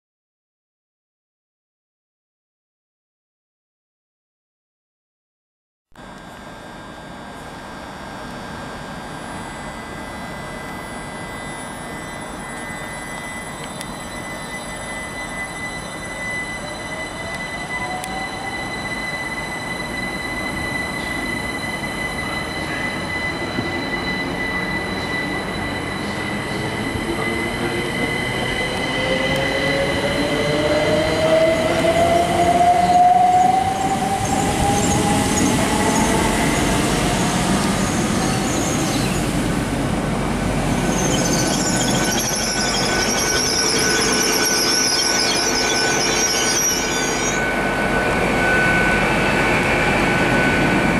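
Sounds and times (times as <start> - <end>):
electric train whine: 6.0 - 50.9
train brakes squealing: 6.6 - 50.9.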